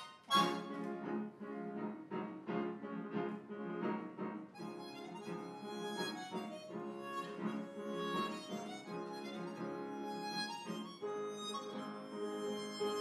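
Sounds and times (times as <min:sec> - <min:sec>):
harmonica: 0:00.0 - 0:00.8, 0:04.6 - 0:13.0
upright piano: 0:00.0 - 0:13.0.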